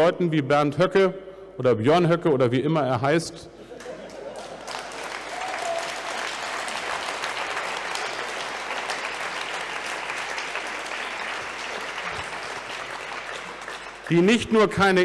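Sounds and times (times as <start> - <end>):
audience applauding: 3.8 - 15.0.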